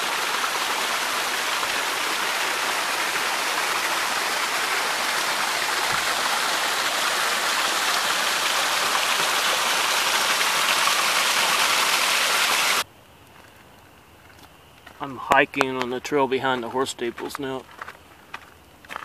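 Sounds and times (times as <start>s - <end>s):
waterfall splashing and rushing: 0.0s - 12.8s.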